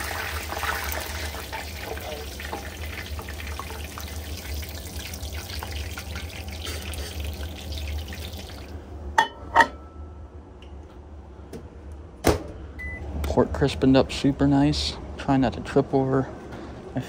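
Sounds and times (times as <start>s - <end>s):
oil sizzling with crackles: 0.0s - 8.8s.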